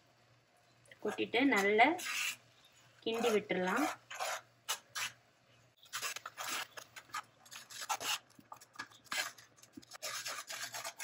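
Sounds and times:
metal spoon scraping a pan: 1.1s - 2.5s, 3.1s - 5.2s, 5.8s - 11.0s.

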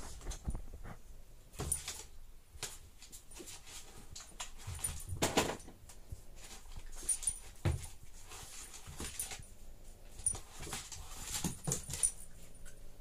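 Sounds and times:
animals scuffling on wooden floor: 6.0s - 12.7s.

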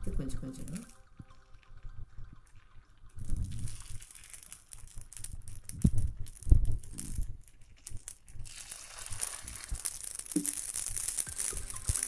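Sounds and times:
batter sizzling in hot oil: 3.1s - 12.0s.

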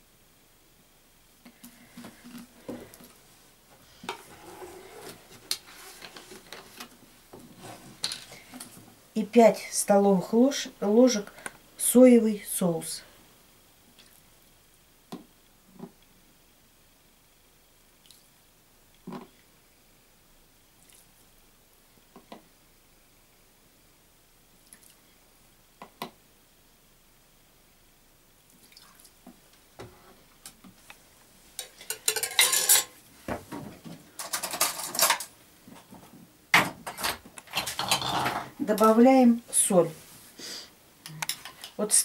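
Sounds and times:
metal spoon scraping plastic bowl: 37.5s - 38.5s.

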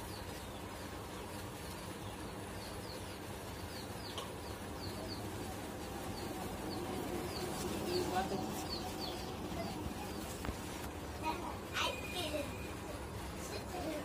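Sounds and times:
small birds chirping: 0.0s - 14.0s.

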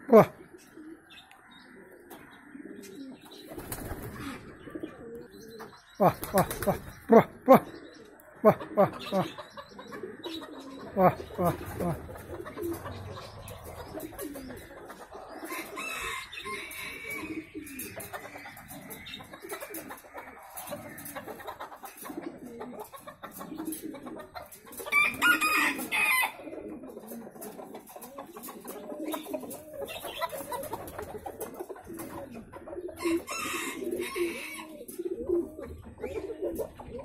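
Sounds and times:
hens clucking: 0.0s - 37.0s
rooster crowing: 24.9s - 26.4s.

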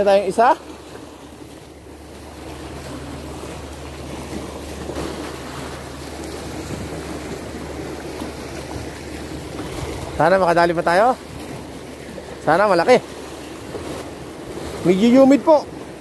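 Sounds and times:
sea waves washing on shore: 0.0s - 16.0s.

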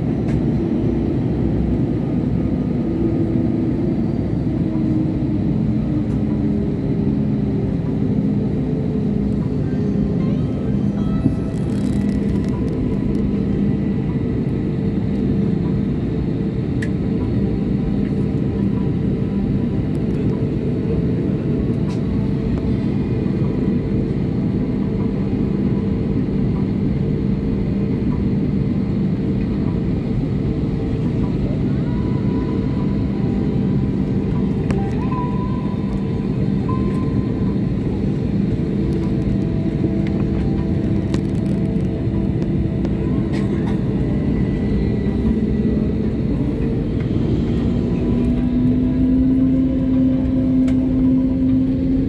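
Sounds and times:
jet engine drone inside cabin: 0.0s - 52.0s.

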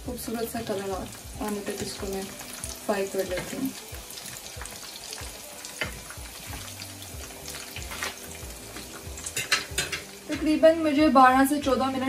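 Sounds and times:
food sizzling in oil: 0.0s - 12.0s
forks clicking against pan: 9.3s - 10.5s.

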